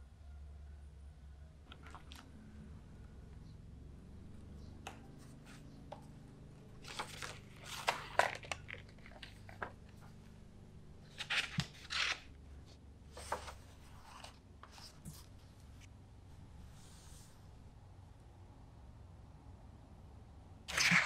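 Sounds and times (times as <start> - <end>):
low room hum: 0.0 - 21.0
paper rustling and crackling: 6.8 - 10.2, 11.0 - 15.9.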